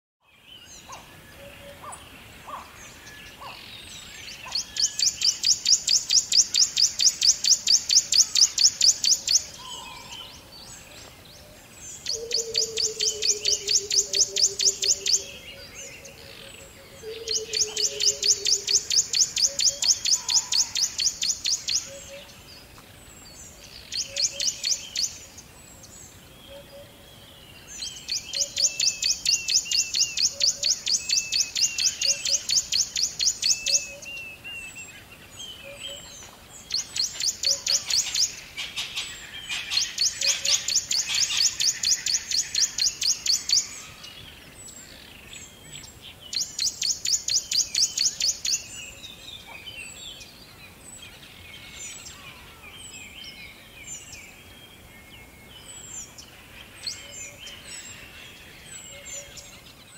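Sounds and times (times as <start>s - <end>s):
bird trilling: 17.0s - 22.2s.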